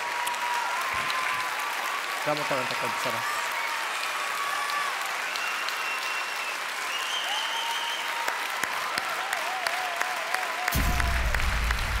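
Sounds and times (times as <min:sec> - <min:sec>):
audience applauding: 0:00.0 - 0:12.0
deep bass sound: 0:10.8 - 0:12.0.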